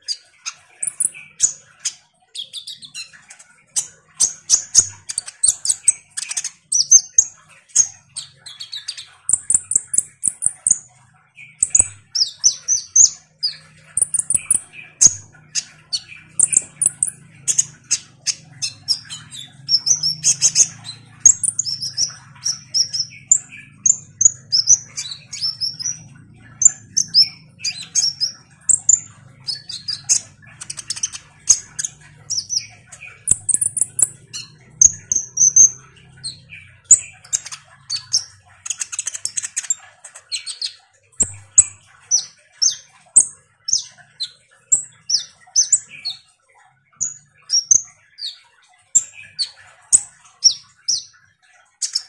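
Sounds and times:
sunbird chirping and whistling: 11.5s - 46.2s.

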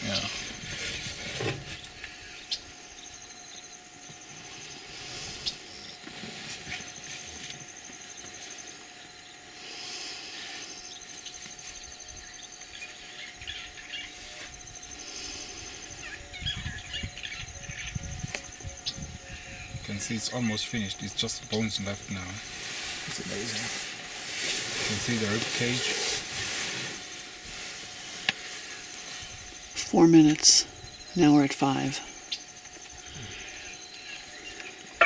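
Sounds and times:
faint steady hum: 0.0s - 35.0s.

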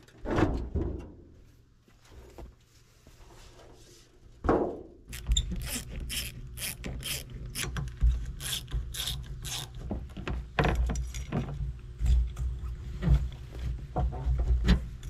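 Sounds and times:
metallic clicks and scrapes: 5.1s - 9.9s.

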